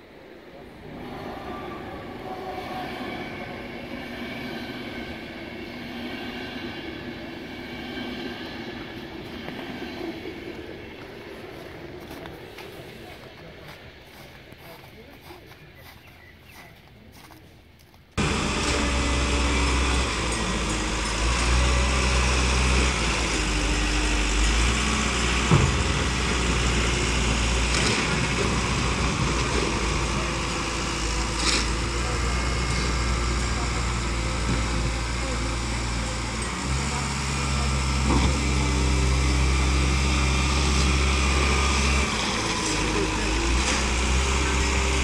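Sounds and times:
diesel engine running: 0:18.2 - 0:45.0.

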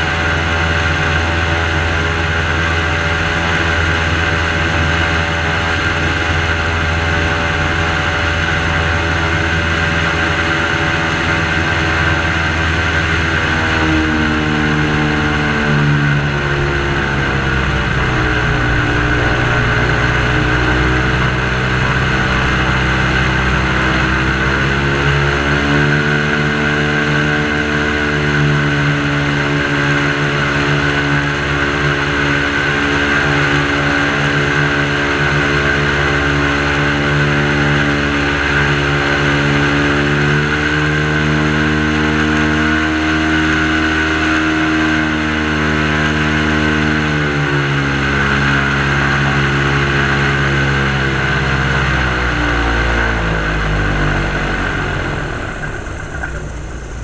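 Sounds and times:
airboat engine and propeller: 0:00.0 - 0:57.0.

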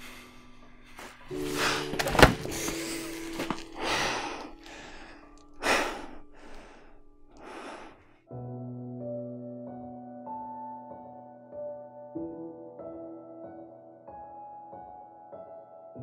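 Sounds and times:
low held music chord: 0:00.0 - 0:10.3
man breathing heavily and sighing: 0:01.0 - 0:08.0.

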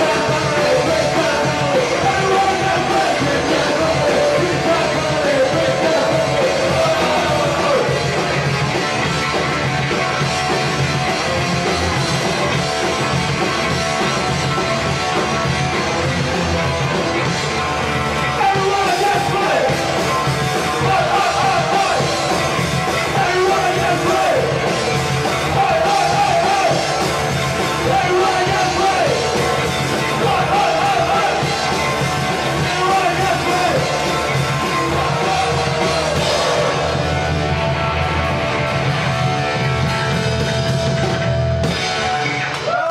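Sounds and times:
shouted vocals: 0:00.0 - 0:08.3, 0:18.3 - 0:20.0, 0:20.6 - 0:24.8, 0:25.4 - 0:27.2, 0:27.8 - 0:37.8, 0:42.5 - 0:42.9
punk rock band playing: 0:00.0 - 0:42.9.

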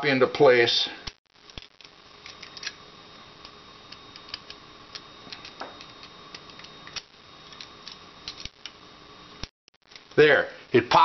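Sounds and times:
faint steady hum: 0:00.0 - 0:11.0
small metal clicks and scrapes: 0:03.4 - 0:08.8.

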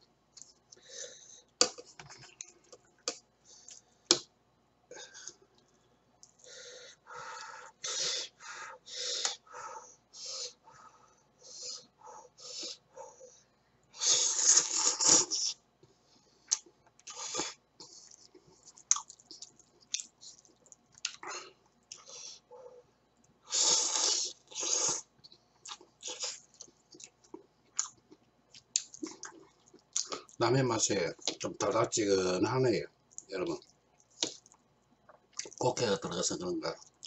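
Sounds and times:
man slurping noodles: 0:14.0 - 0:15.6, 0:23.5 - 0:25.0
chewing: 0:16.5 - 0:21.3, 0:24.5 - 0:30.4, 0:33.1 - 0:35.6.

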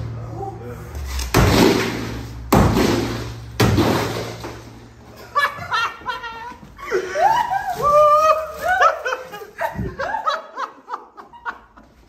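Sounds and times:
sledgehammer hitting a wall: 0:01.2 - 0:04.8.

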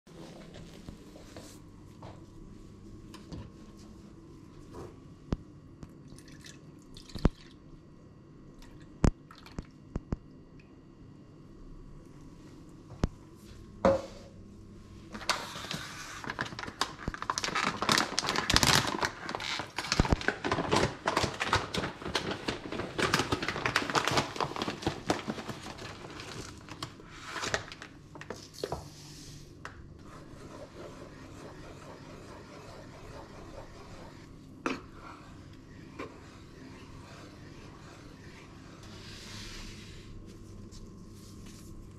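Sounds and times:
packet crinkling: 0:16.2 - 0:28.3.

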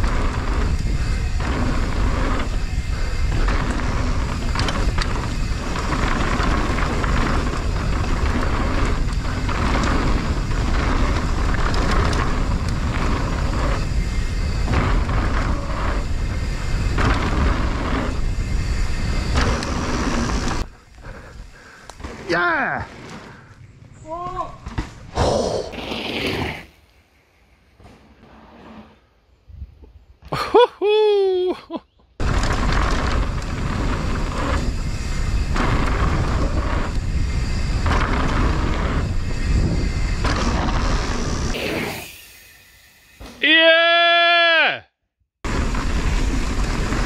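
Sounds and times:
wind rush on microphone: 0:00.0 - 0:22.3, 0:32.2 - 0:42.1
mountain bike rattling on dirt: 0:00.0 - 0:24.0, 0:32.2 - 0:43.5, 0:45.4 - 0:47.0
pulsing hiss: 0:00.0 - 0:24.2, 0:32.2 - 0:44.2
wind on microphone: 0:32.2 - 0:42.0.

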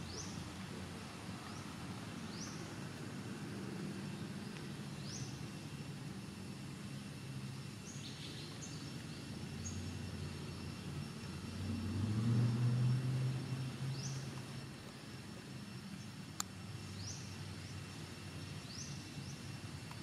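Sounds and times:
bird chirping: 0:07.8 - 0:10.8.

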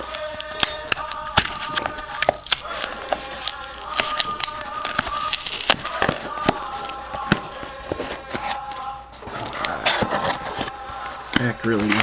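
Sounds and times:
cardboard box tearing open: 0:00.9 - 0:06.5.

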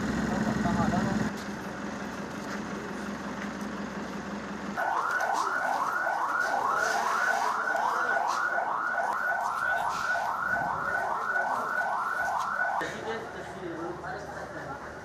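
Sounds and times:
ambulance siren sweeping: 0:04.8 - 0:12.8.

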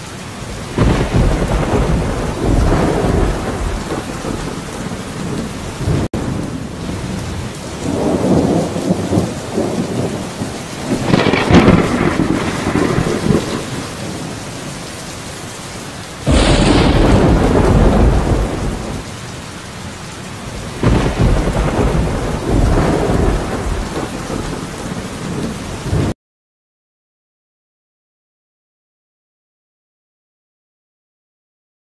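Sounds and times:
steady rain: 0:00.0 - 0:26.2
rolling thunder: 0:00.5 - 0:14.9, 0:16.2 - 0:19.2, 0:20.5 - 0:26.2
loud thunderclap: 0:00.6 - 0:14.4, 0:16.2 - 0:19.1, 0:20.6 - 0:26.2.

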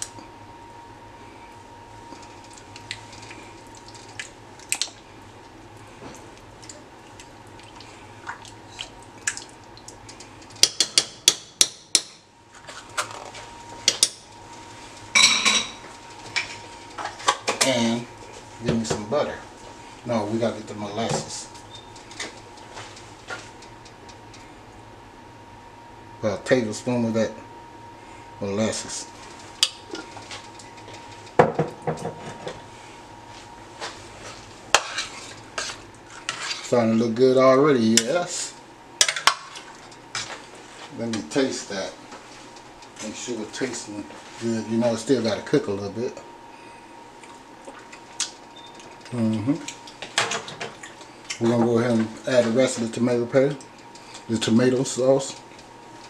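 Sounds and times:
ladle stirring in a pot: 0:33.8 - 0:36.7.

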